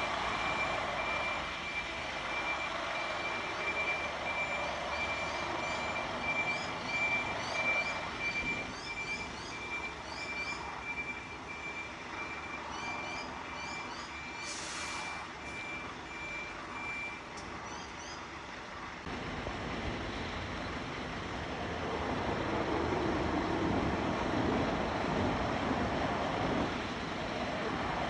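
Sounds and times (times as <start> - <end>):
reversing beeper: 0.0 - 17.2
truck engine: 0.0 - 28.0
air hiss: 14.4 - 15.2.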